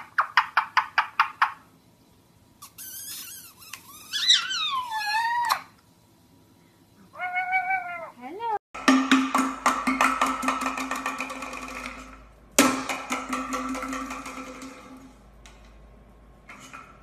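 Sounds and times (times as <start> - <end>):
parakeet calling: 2.6 - 5.7.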